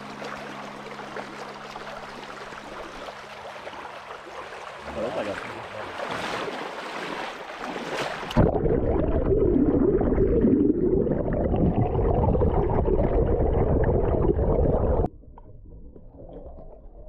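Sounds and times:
water splashing over microphone: 0.0s - 15.1s
muffled underwater gurgling churn: 7.3s - 17.0s.

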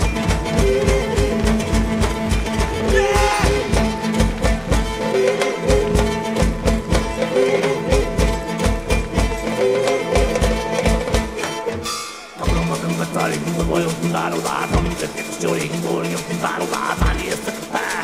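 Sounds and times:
bass drum beating: 0.0s - 5.1s
bowed strings playing melody: 0.0s - 16.5s.

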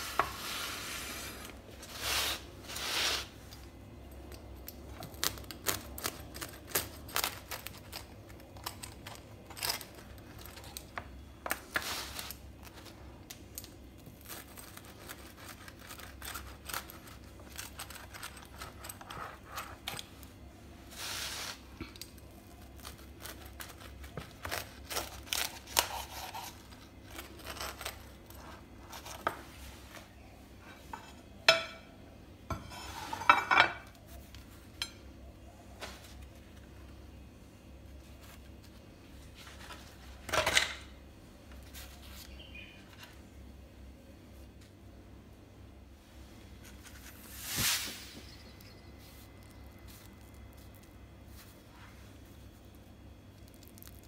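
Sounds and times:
pizza cutter slicing crisp crust: 14.2s - 20.0s, 22.6s - 29.4s.

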